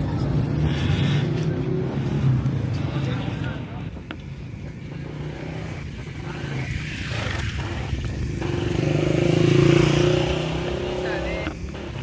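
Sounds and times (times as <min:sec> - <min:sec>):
motorcycle engine running: 0:04.8 - 0:12.0.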